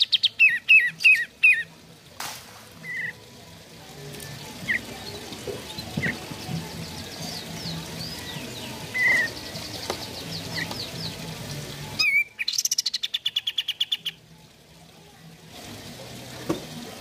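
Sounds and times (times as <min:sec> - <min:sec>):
bulbul singing: 0:00.0 - 0:14.6
other birds chirping: 0:02.8 - 0:03.2, 0:04.0 - 0:14.3.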